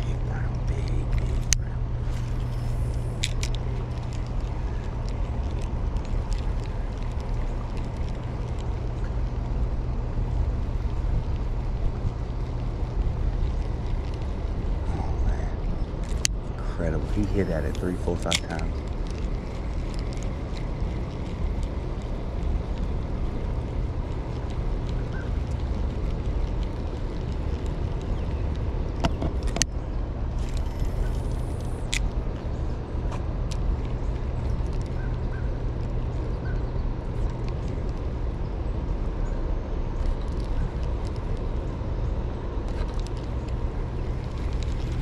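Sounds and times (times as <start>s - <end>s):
sharp clicks: 17.0s - 29.7s.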